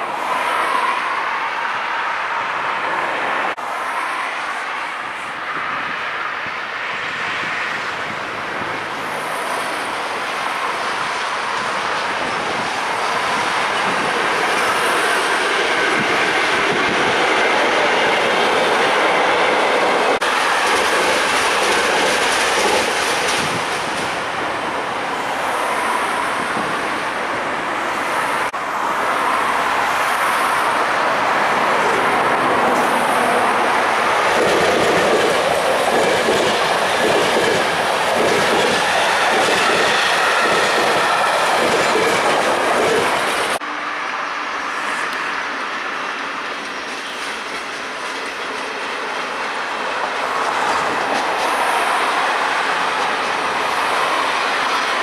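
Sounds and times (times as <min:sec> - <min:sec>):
train wheels clattering over rail joints: 0:19.5 - 0:24.2, 0:34.2 - 0:43.6.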